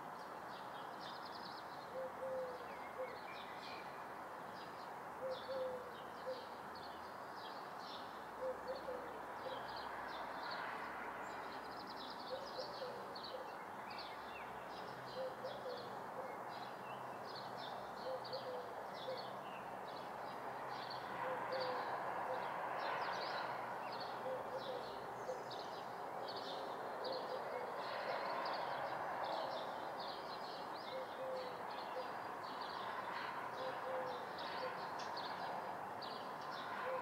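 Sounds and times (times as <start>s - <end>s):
bird cooing call: 1.9s - 3.4s, 5.2s - 6.6s, 8.4s - 9.8s, 12.3s - 13.6s, 15.1s - 16.6s, 18.0s - 19.3s, 21.2s - 22.6s, 24.0s - 25.6s, 26.4s - 28.2s, 30.8s - 32.2s, 33.5s - 34.9s, 36.8s - 37.0s.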